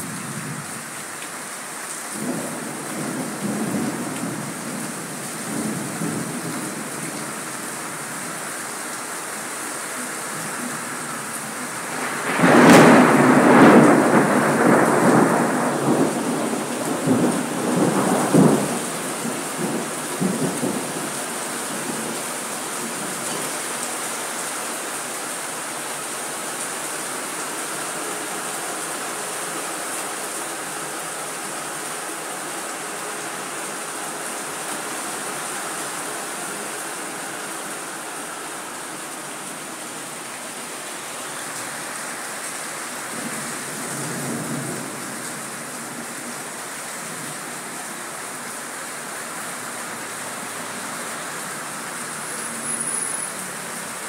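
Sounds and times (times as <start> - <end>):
steady rain: 0.0 - 54.0
rolling thunder: 11.9 - 21.1.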